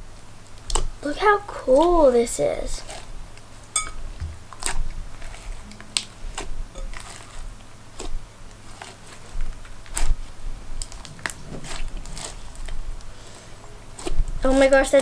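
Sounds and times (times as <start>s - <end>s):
slime squished by hand: 14.0s - 15.0s.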